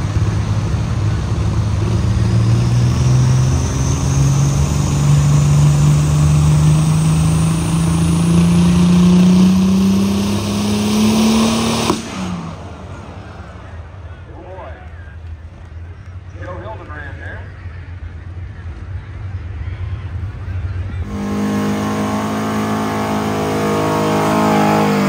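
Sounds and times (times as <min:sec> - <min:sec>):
tractor engine under load: 0:00.0 - 0:25.0
sharp engine crack: 0:09.3 - 0:14.6.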